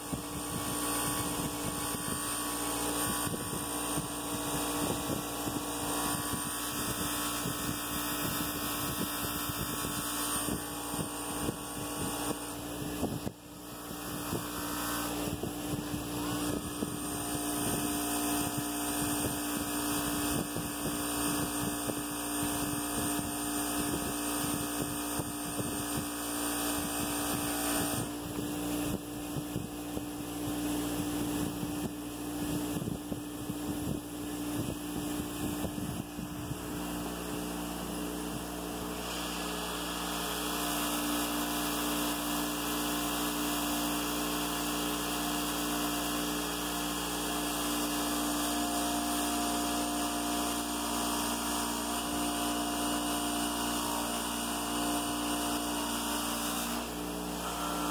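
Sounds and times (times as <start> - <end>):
bench grinder motor hum: 0.0 - 57.9
metal grinding on buffing wheel: 54.8 - 57.9.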